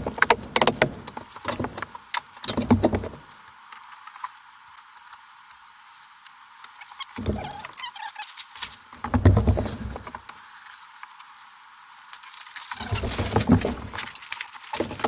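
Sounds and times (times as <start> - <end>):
construction knocks and rattles: 0.0 - 3.3, 9.0 - 10.2, 12.8 - 15.0.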